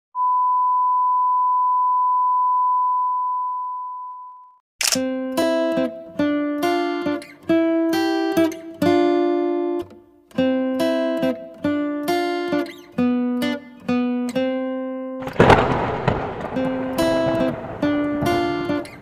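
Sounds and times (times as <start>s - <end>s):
acoustic guitar strummed chords: 5.0s - 19.0s.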